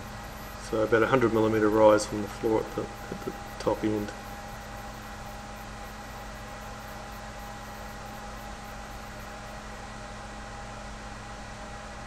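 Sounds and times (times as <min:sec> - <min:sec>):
steady hiss: 0:00.0 - 0:10.1
faint hum and whine: 0:00.0 - 0:12.0.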